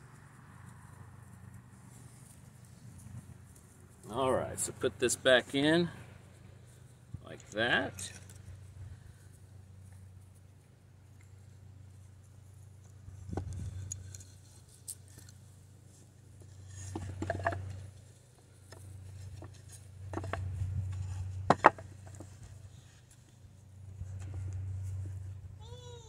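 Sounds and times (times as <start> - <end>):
wooden boards knocking together: 16.9 - 17.8, 21.4 - 22.3.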